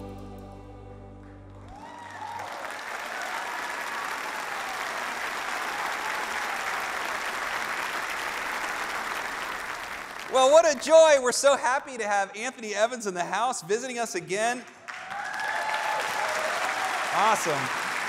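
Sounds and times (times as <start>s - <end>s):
orchestra chord: 0.0s - 2.2s
congregation applauding: 1.2s - 11.2s, 14.4s - 18.0s.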